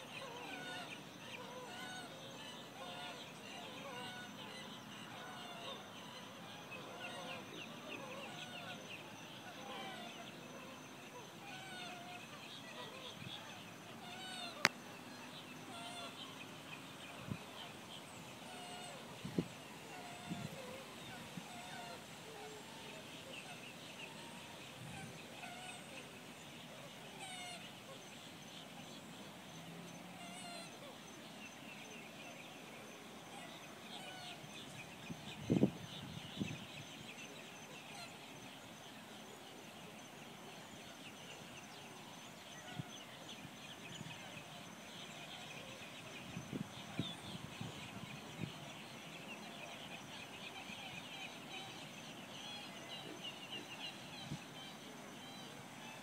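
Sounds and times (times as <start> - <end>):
birds calling and chirping: 0.0 - 56.0.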